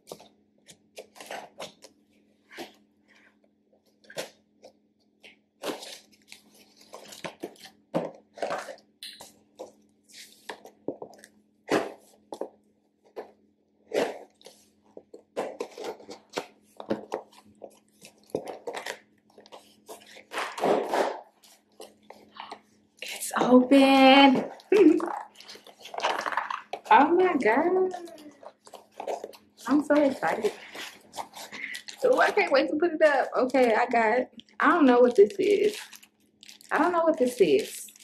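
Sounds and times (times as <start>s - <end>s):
scissors cutting cardboard: 15.4s - 22.3s, 27.8s - 32.5s
tape and cardboard tearing: 17.9s - 22.0s.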